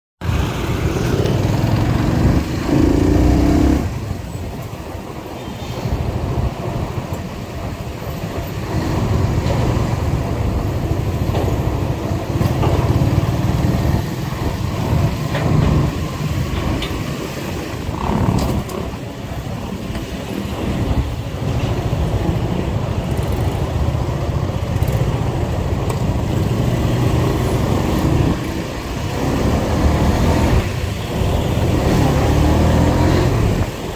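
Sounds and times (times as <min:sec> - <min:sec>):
road noise: 0:00.2 - 0:33.9
traffic vehicles: 0:00.2 - 0:33.9
motorcycle engine: 0:00.4 - 0:04.1.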